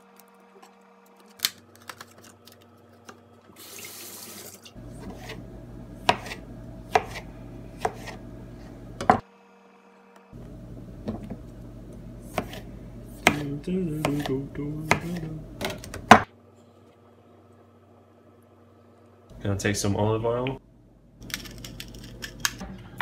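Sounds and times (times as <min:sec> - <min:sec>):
kitchen tap running: 0:03.6 - 0:04.8.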